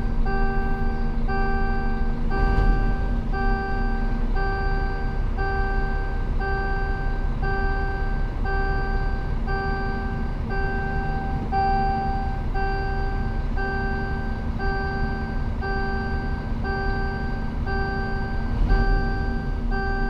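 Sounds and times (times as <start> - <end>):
electronic warning beeps: 0.0 - 20.0
truck diesel engine running: 0.0 - 20.0
road noise: 2.0 - 16.7.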